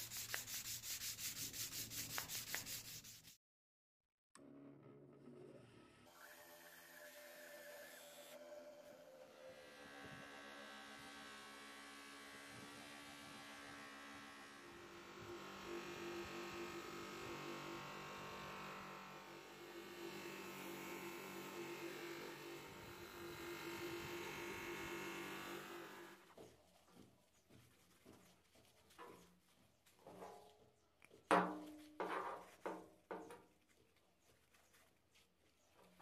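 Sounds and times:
metal polished on buffing wheel: 0.0 - 3.3, 14.6 - 26.2
bench grinder motor hum: 6.1 - 26.2.

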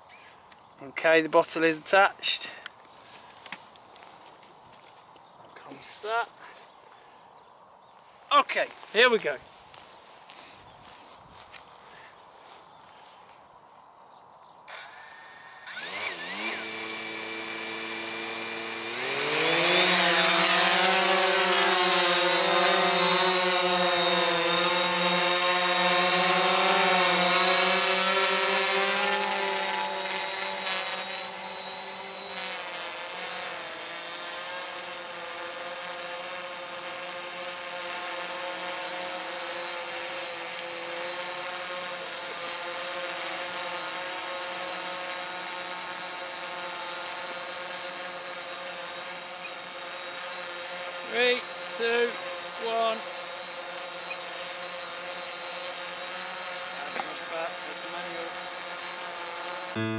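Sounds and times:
drone propellers buzzing: 14.7 - 59.9.

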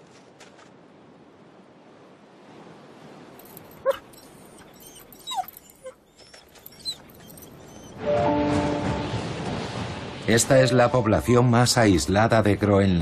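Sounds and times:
chain rattling: 3.4 - 7.9
dog whining: 3.8 - 8.0.

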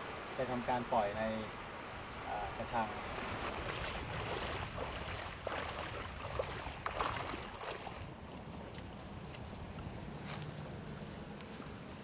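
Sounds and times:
sea waves washing ashore: 0.0 - 8.2
wind buffeting microphone: 1.6 - 12.0.

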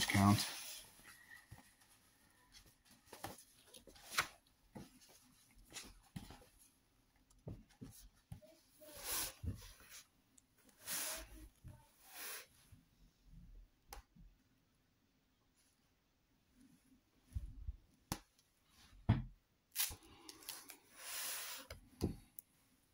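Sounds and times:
book pages rustling: 0.9 - 6.7.

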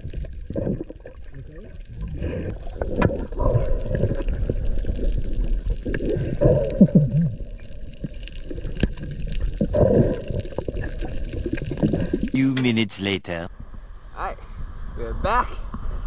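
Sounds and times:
underwater gurgling and bubbling: 0.0 - 12.3.

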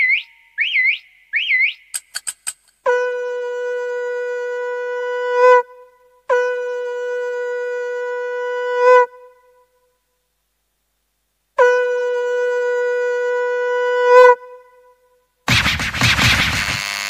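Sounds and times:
quick clicks: 1.9 - 2.8.

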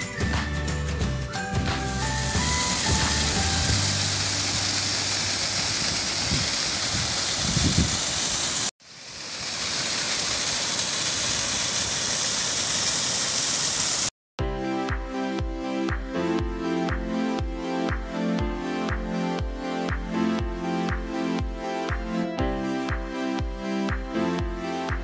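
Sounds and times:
waterfall rushing: 2.0 - 14.1.

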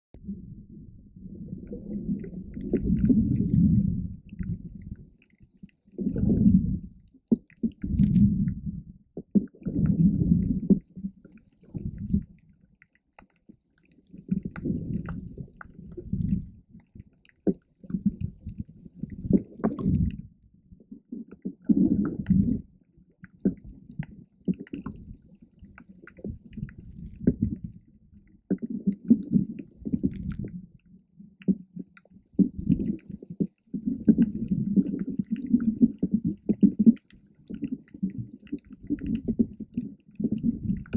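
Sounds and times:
muffled underwater surges: 0.2 - 5.2, 6.0 - 7.1.

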